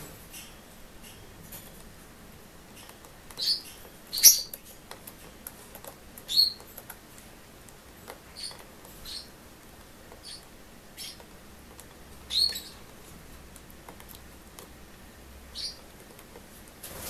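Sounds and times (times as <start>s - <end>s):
parrot chirping: 3.4s - 4.6s, 6.2s - 6.6s, 8.3s - 9.3s, 10.2s - 11.2s, 12.3s - 12.8s, 15.5s - 15.8s.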